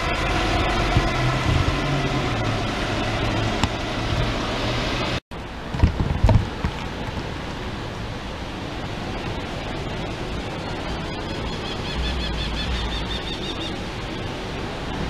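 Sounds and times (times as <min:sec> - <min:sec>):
bus diesel engine running: 0:00.0 - 0:05.7
distant traffic: 0:00.0 - 0:15.0.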